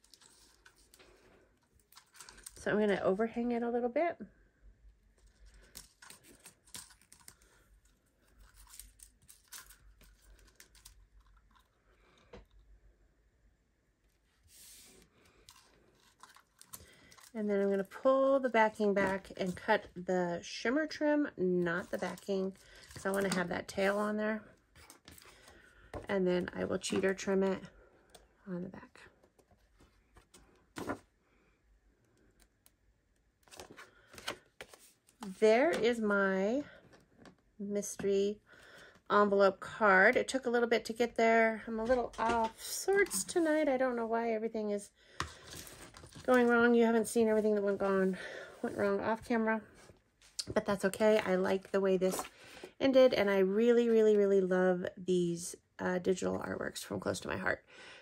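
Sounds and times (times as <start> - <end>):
paper rustling: 5.6 - 11.7, 14.4 - 17.9, 29.8 - 31.0.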